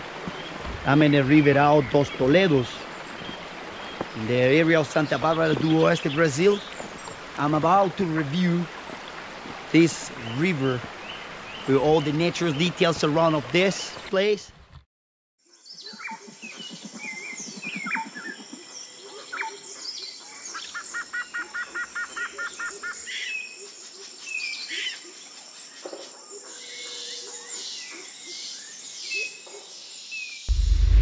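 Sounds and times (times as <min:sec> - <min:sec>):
wild birds chirping and singing: 0:00.0 - 0:09.1, 0:09.7 - 0:14.4, 0:15.4 - 0:30.5
loud low boom: 0:30.5 - 0:31.0.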